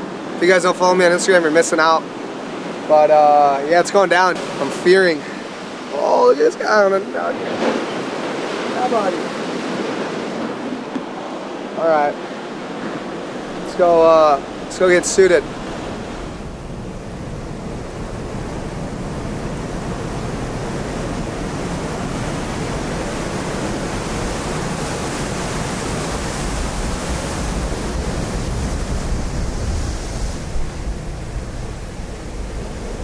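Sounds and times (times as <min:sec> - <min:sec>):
ocean surf breaking: 0:00.0 - 0:33.0
wind: 0:00.0 - 0:33.0.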